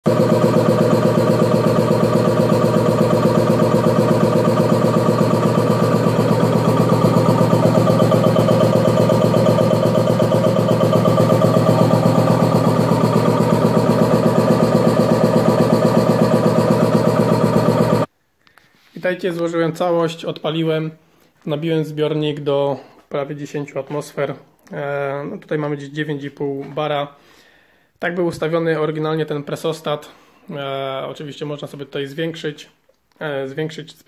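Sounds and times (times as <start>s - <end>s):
piston air compressor running: 0.0s - 18.1s.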